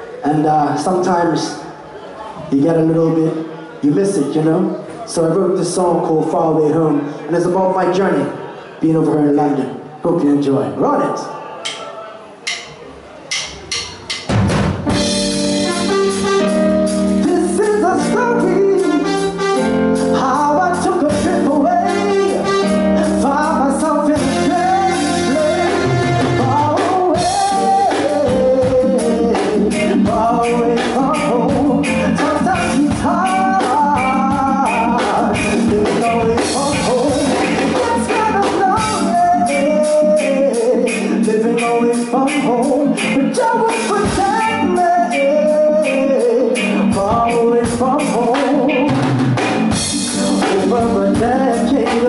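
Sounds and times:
live reggae band playing: 0:00.0 - 0:10.2, 0:11.1 - 0:52.0
man singing into microphone: 0:17.2 - 0:49.2, 0:50.0 - 0:52.0.

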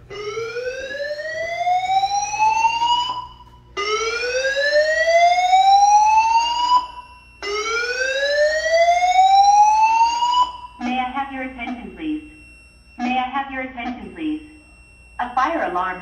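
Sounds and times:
fire alarm rising whoop: 0:00.0 - 0:10.8.

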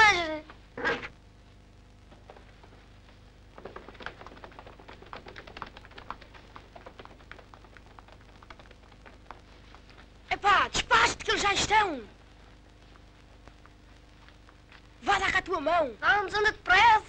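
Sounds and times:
running footsteps on road: 0:03.6 - 0:10.1.

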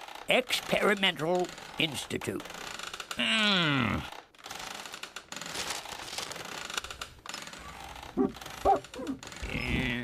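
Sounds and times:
chair creaking: 0:04.3 - 0:10.0.

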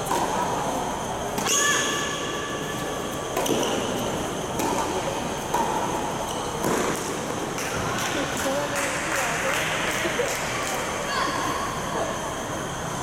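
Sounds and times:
tennis balls bouncing on court: 0:03.3 - 0:09.6
shoes squeaking: 0:06.1 - 0:06.8.

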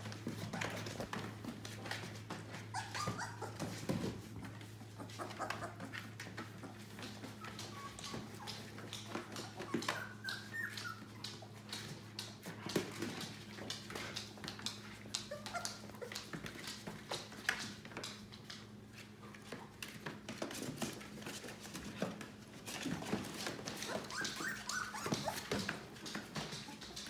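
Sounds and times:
puppies whimpering and squeaking: 0:02.0 - 0:13.2, 0:14.7 - 0:16.9, 0:22.6 - 0:27.0.

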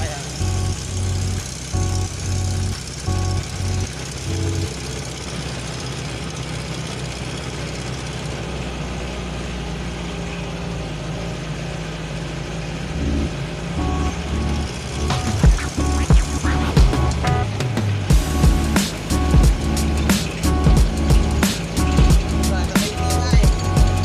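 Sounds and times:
tyre noise on road: 0:00.0 - 0:24.0
vehicle engine hum: 0:00.0 - 0:24.0.

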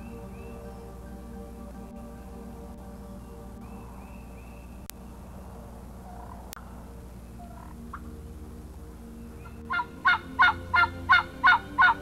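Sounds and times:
turkey yelping: 0:09.7 - 0:12.0.

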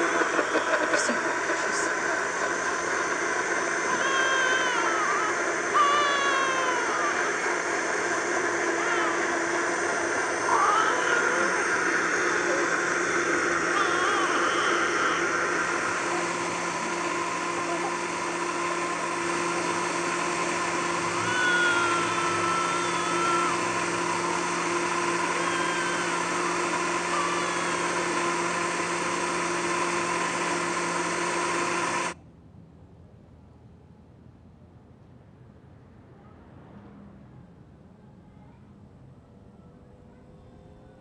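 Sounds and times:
blender running: 0:00.0 - 0:32.2.

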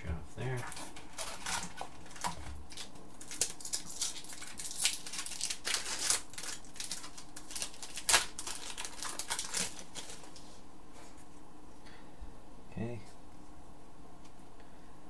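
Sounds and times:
trading cards rustling: 0:00.5 - 0:10.5.

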